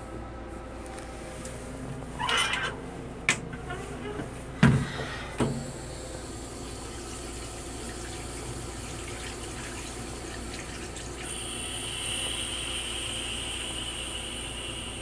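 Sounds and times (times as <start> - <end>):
toilet flushing water: 3.6 - 15.0.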